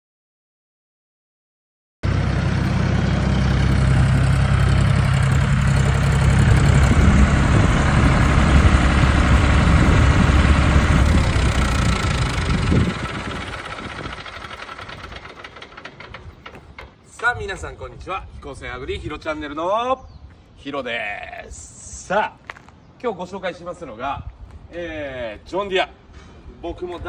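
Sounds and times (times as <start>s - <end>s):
tractor diesel engine running: 2.0s - 17.7s.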